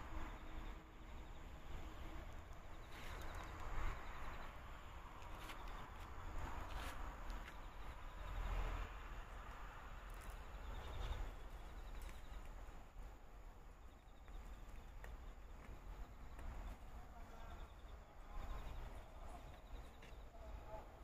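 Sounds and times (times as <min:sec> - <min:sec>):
insects chirping in trills: 0:00.2 - 0:21.0.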